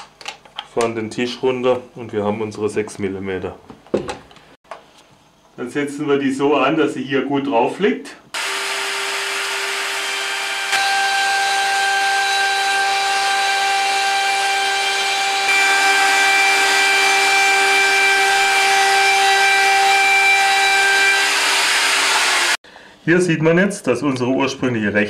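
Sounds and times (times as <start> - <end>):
router cutting wood whine: 8.4 - 22.6.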